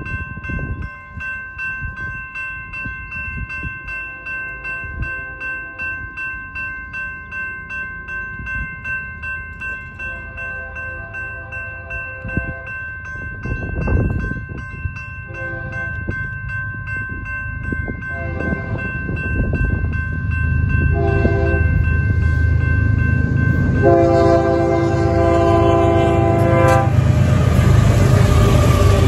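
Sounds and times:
crossing warning bell ringing: 0.0s - 29.0s
locomotive rumble: 9.8s - 29.0s
train air horn blasts: 15.3s - 16.0s, 18.1s - 18.9s, 20.9s - 21.7s, 23.8s - 27.1s.

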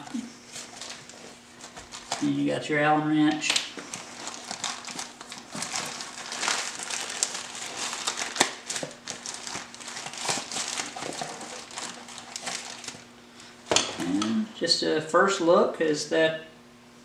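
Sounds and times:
wrapping crinkling and rustling: 0.0s - 2.4s, 3.2s - 13.2s.

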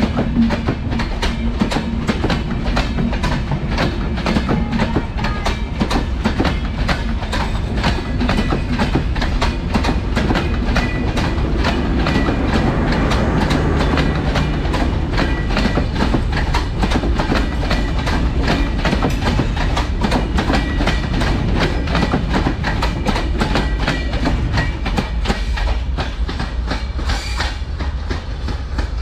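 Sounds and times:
low train rumble: 0.0s - 29.0s
train wheels clattering over rail joints: 0.0s - 29.0s.

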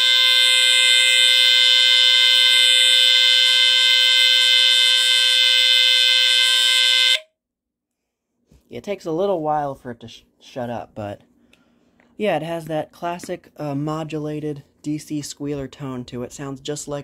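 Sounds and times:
smoke alarm squealer tone: 0.0s - 7.2s.

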